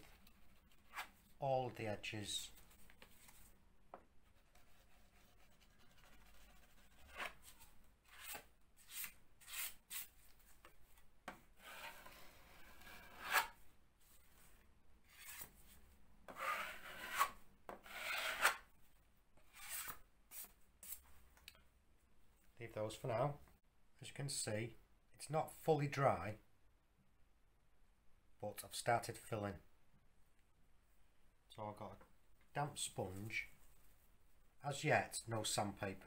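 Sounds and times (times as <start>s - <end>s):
knife scraping plasterboard: 4.4s - 10.2s, 11.6s - 13.6s, 15.0s - 18.7s, 19.4s - 21.0s.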